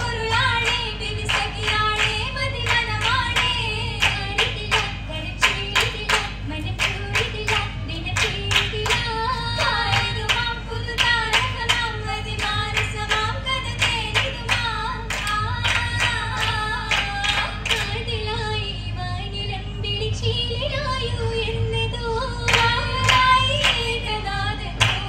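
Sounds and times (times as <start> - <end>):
girls clapping in unison: 0.0 - 18.0, 22.5 - 24.1, 24.8 - 25.0.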